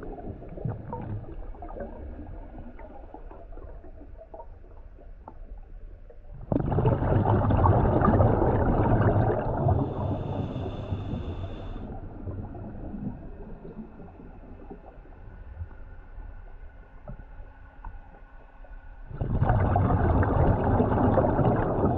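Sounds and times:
low underwater rumble: 0.0s - 21.9s
underwater breath bubbling: 6.4s - 14.9s, 19.1s - 21.9s.

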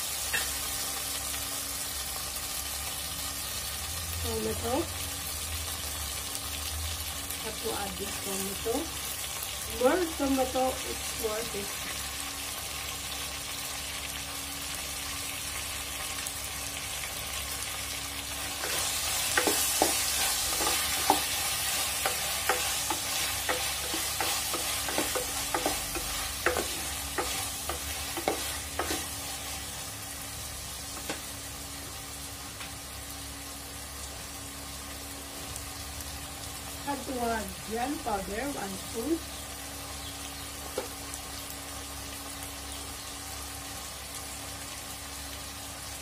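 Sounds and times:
food sizzling in a pan: 0.0s - 46.0s
wooden spoon knocking a pan: 18.6s - 21.4s, 22.0s - 29.1s.

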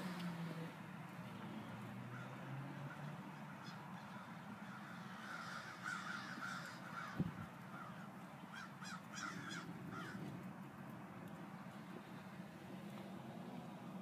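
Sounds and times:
birds calling: 2.0s - 10.4s.

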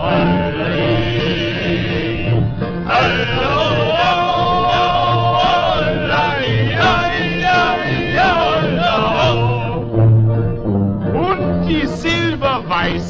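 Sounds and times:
men singing long held notes: 0.0s - 9.9s
instrumental backing music: 0.0s - 13.0s.

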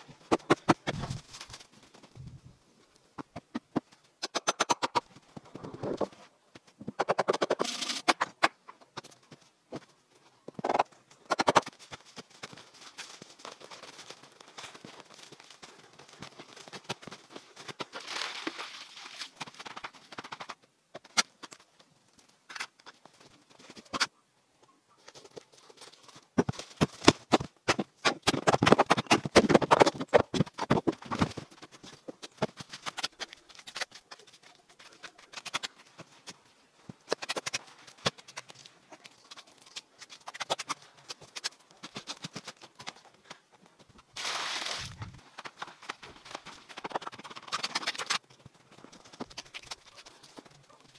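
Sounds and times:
shovel chopping and scraping soil: 0.2s - 1.5s, 3.3s - 6.1s, 6.8s - 9.2s, 10.6s - 12.6s, 26.4s - 31.4s, 32.1s - 36.4s, 37.0s - 43.0s, 44.2s - 48.3s, 49.1s - 50.4s.

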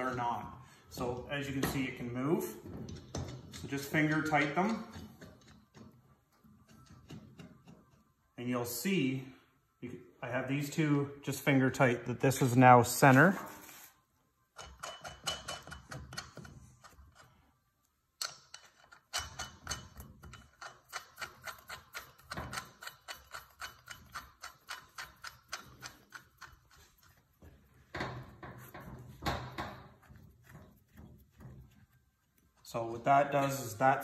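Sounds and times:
lug nuts clicking on studs: 2.9s - 8.0s, 14.6s - 17.4s, 18.2s - 31.7s.

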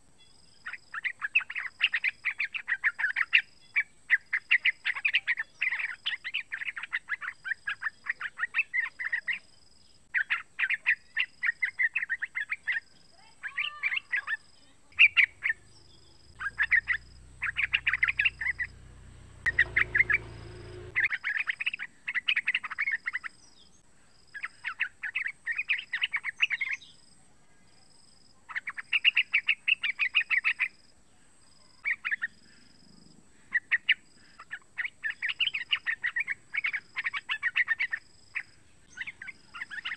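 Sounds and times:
bird chattering song: 0.2s - 27.1s, 28.5s - 30.8s, 31.4s - 39.9s
low rumble: 15.4s - 21.0s.

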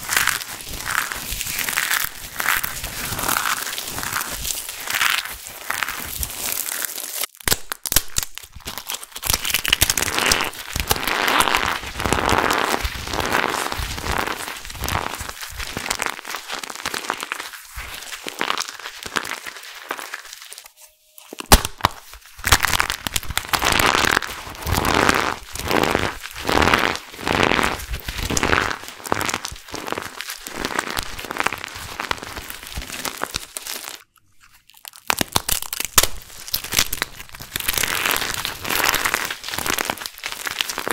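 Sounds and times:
hands crushing dry soap: 0.0s - 40.9s
sharp crack: 21.4s - 24.0s.

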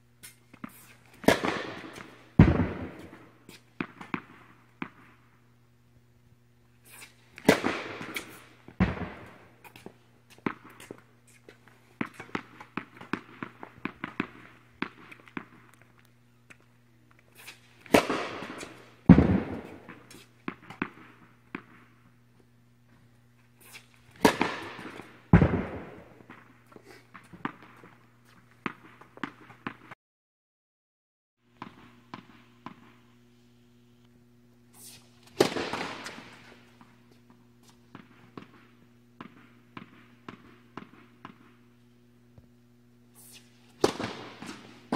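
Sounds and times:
racket striking tennis ball: 0.2s - 5.0s, 6.8s - 11.4s, 12.0s - 15.6s, 17.4s - 21.7s, 23.6s - 26.4s, 34.8s - 36.6s, 43.2s - 44.9s
footsteps: 6.8s - 30.0s
tennis ball bouncing: 12.0s - 15.6s.

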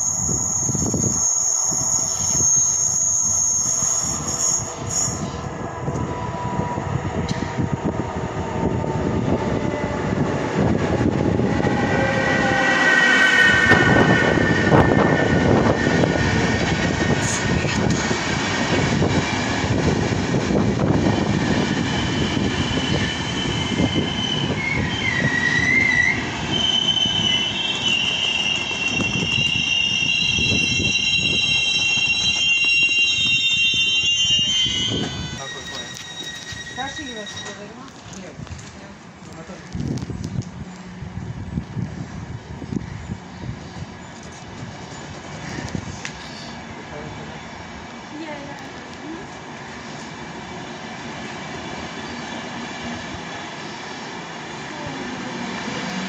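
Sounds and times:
train wheels rumbling on rails: 3.7s - 56.0s
brakes squealing: 21.8s - 38.3s.

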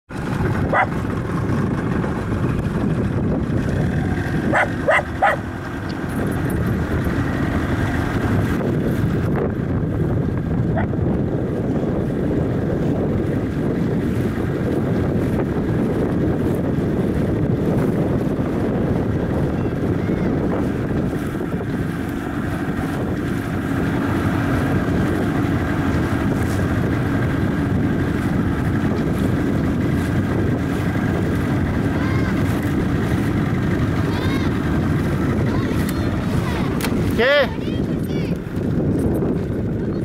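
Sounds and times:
wind buffeting microphone: 0.1s - 40.0s.

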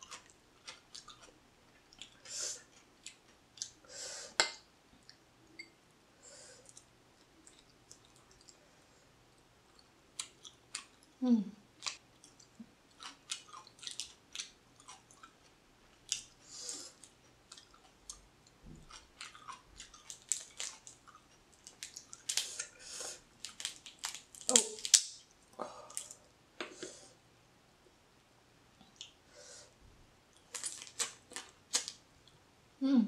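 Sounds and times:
chewing and wet mouth sounds: 0.0s - 3.8s, 6.6s - 26.2s
crab shell cracking apart: 23.4s - 25.2s.

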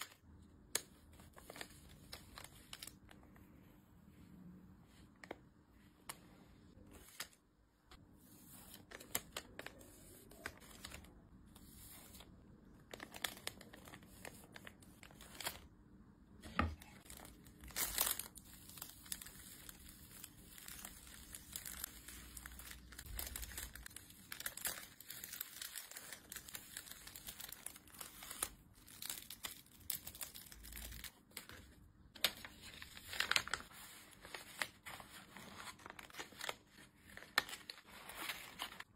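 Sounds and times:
plastic and paper crinkling: 8.4s - 15.7s, 16.4s - 38.9s.

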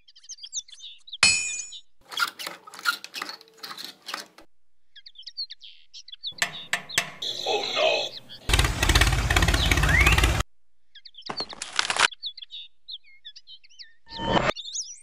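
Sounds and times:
birds chirping: 0.0s - 15.0s
light knocking and rattling: 6.4s - 7.2s, 8.5s - 10.4s.

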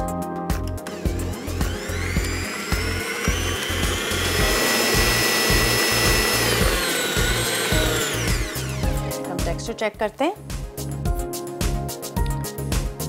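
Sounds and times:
stand mixer motor whining: 0.8s - 9.1s.

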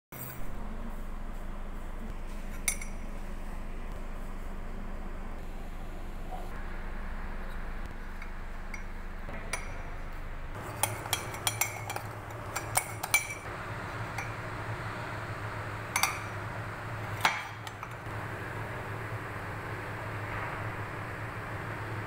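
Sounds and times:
low hum: 0.2s - 22.0s
spoon clinking against mug: 10.6s - 13.5s, 16.0s - 16.4s.

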